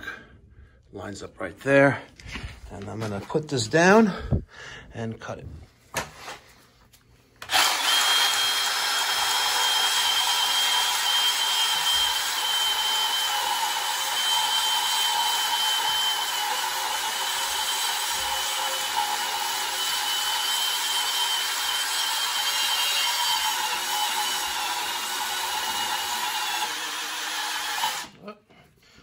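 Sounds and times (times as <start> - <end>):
band saw cutting steel pipe: 7.4 - 28.1.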